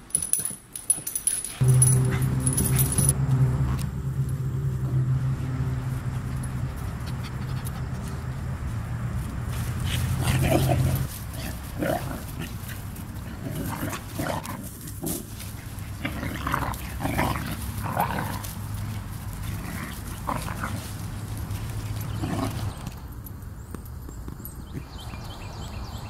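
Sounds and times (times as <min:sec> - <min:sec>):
puppies vocalizing: 0:06.0 - 0:08.3.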